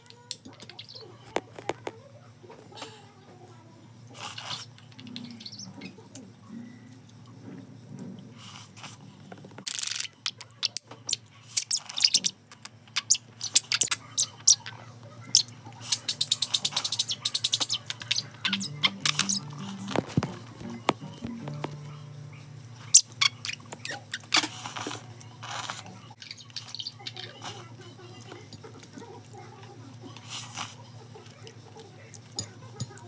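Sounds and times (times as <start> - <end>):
noodles being slurped: 24.2 - 26.0.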